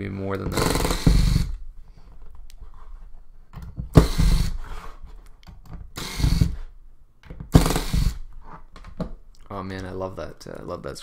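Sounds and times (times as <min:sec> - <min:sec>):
electric screwdriver whirring: 0:00.6 - 0:01.6, 0:04.0 - 0:04.6, 0:06.0 - 0:06.6, 0:07.5 - 0:08.2.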